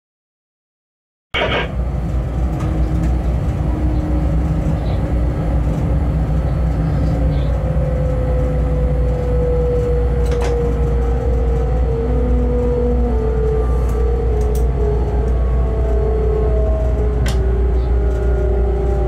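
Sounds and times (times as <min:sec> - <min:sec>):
faint whine: 0:01.4 - 0:01.8
locomotive running rumble: 0:01.4 - 0:19.0.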